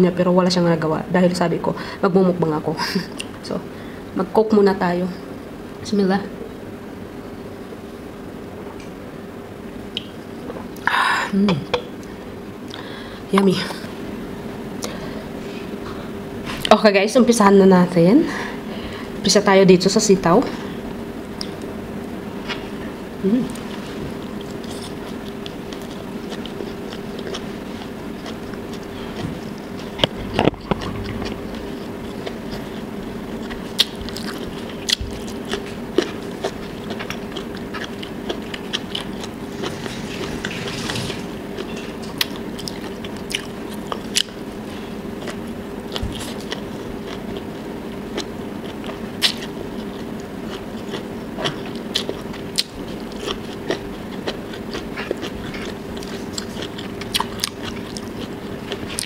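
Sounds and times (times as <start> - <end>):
low hum: 17.5 - 37.2
chewing and biting food: 23.5 - 40.8, 41.6 - 59.0.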